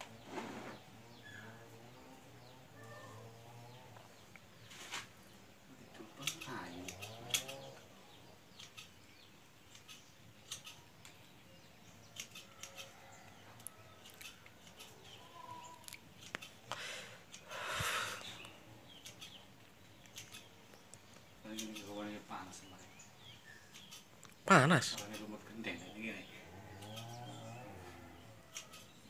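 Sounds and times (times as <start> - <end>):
pruning scissors snipping: 6.2 - 7.6.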